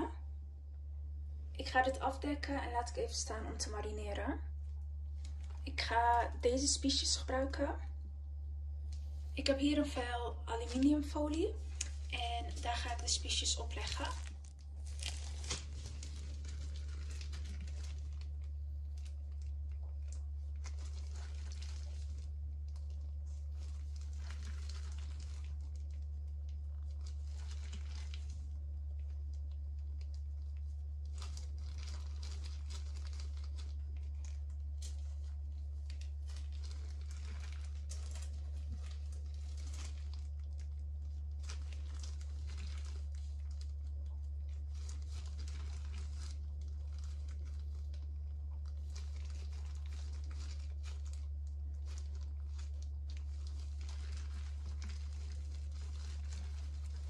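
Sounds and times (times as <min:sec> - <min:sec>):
plastic gloves crinkling: 0:00.0 - 0:57.0
steady low hum: 0:00.0 - 0:57.0.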